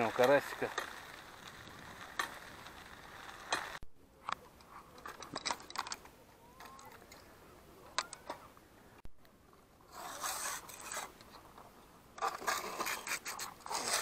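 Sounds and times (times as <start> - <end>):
rod sections scraping: 0.0 - 3.8, 9.9 - 11.5, 12.2 - 14.0.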